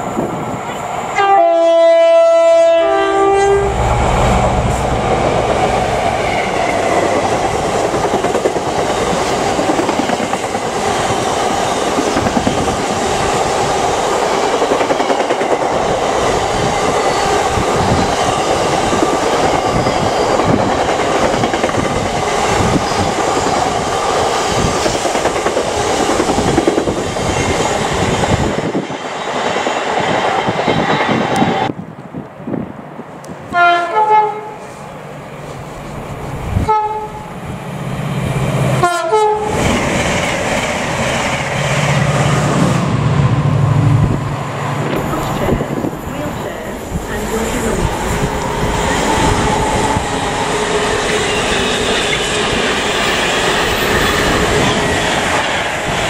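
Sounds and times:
train horn blast: 1.2 - 4.9, 33.5 - 34.7, 36.6 - 37.3, 38.8 - 39.6
wheels clacking on rails: 4.7 - 31.7, 44.0 - 56.0.

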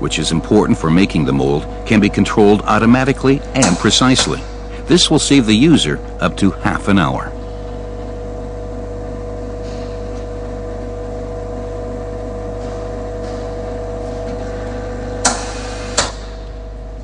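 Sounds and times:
machine humming: 0.0 - 17.0.

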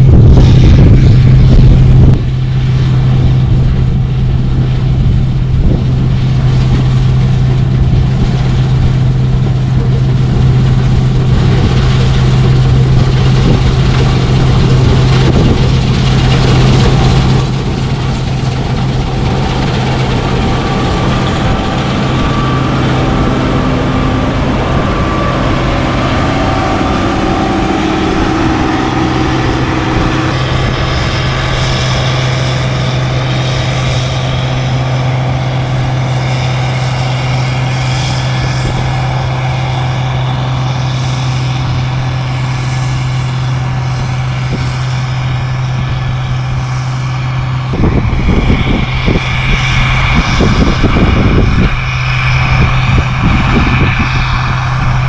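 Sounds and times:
diesel machinery running: 0.0 - 55.0
faint high whines: 16.2 - 55.0.

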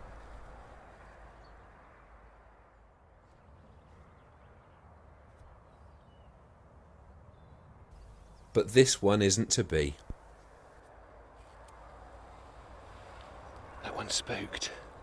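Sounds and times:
faint high bird chirps: 5.6 - 6.4.

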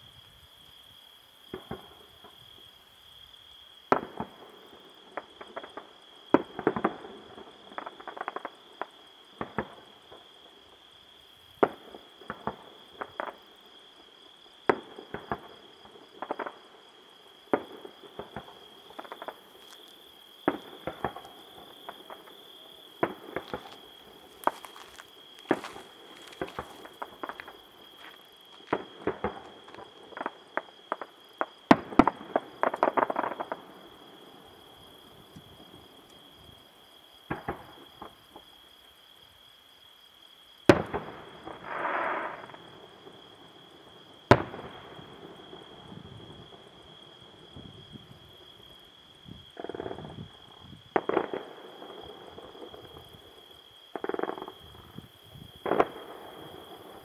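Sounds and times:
crickets trilling: 0.0 - 57.0
fireworks crackling: 17.5 - 33.9, 40.8 - 42.8
fireworks bangs: 20.4 - 33.8, 40.7 - 42.7, 50.9 - 53.0, 55.6 - 57.0.

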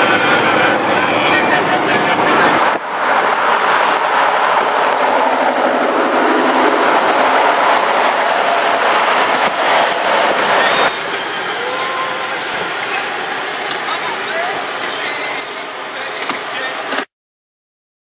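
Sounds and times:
car road and wind noise: 0.0 - 11.4.

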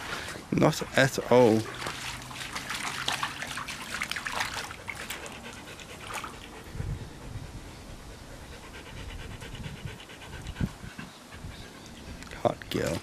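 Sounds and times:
dog lapping and splashing water: 0.0 - 6.8
dog panting: 4.5 - 12.3.

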